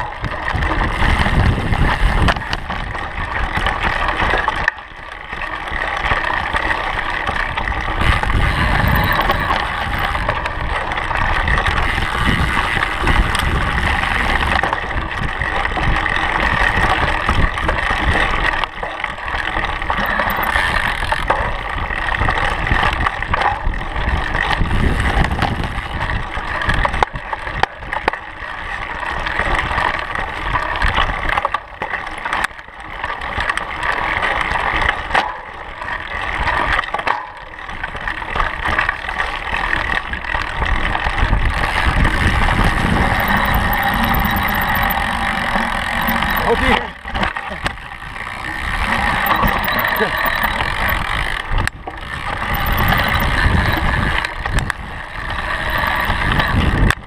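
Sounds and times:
wind rushing over microphone: 0.0s - 3.6s, 40.7s - 57.0s
bike tyres rolling and rattling: 0.0s - 57.0s.

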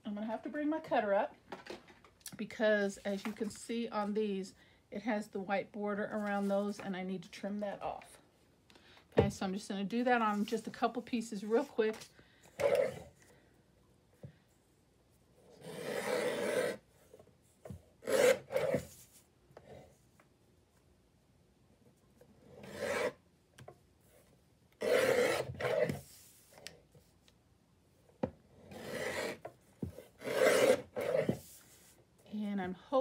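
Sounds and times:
paper trimmer cutting paper: 24.8s - 25.9s, 30.2s - 31.4s.

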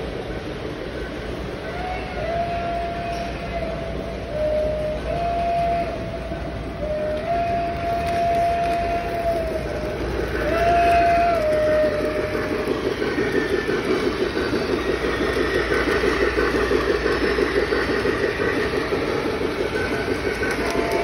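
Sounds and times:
train whistle note: 1.6s - 13.7s, 19.7s - 21.0s
model train wheels clattering: 2.9s - 21.0s.

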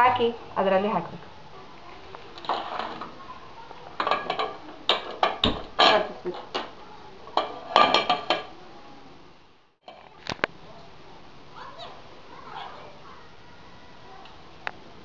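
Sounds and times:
steel utensils clattering: 2.4s - 3.2s, 4.0s - 6.7s, 7.3s - 8.6s.

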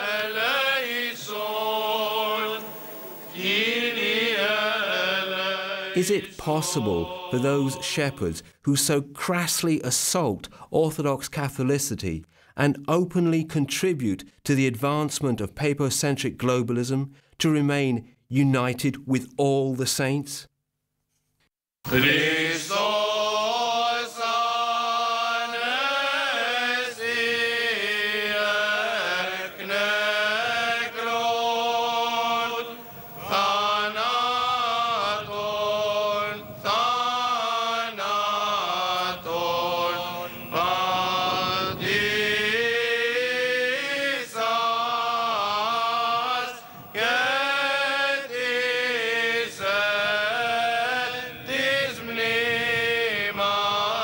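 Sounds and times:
held drone: 0.0s - 7.8s, 26.9s - 43.2s
melismatic chanting: 0.0s - 8.3s, 21.9s - 54.0s.

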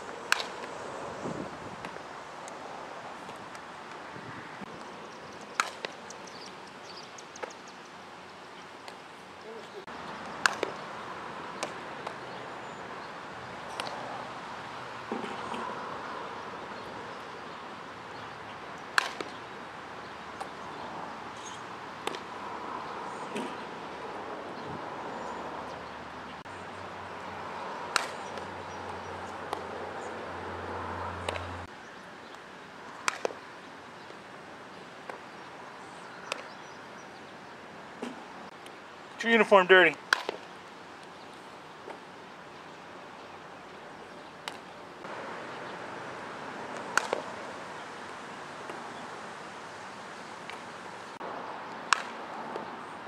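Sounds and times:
steady outdoor hiss: 0.0s - 53.0s
bat hitting softball: 0.3s - 0.7s, 5.6s - 6.0s, 10.3s - 10.9s, 18.9s - 19.4s, 22.0s - 22.3s, 27.9s - 28.5s, 33.0s - 33.4s, 40.1s - 40.5s, 46.7s - 47.3s, 51.9s - 52.3s
ball smacking into leather glove: 19.0s - 19.4s, 40.1s - 40.5s.

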